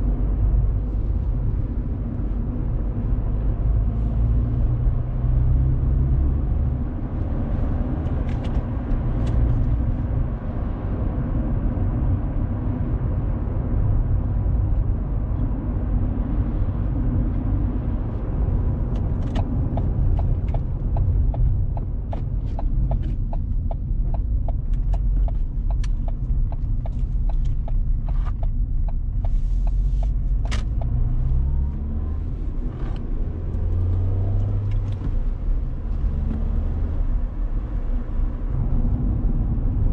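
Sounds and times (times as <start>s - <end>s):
car engine and road rumble: 0.0s - 39.9s
car accelerating: 17.4s - 39.9s.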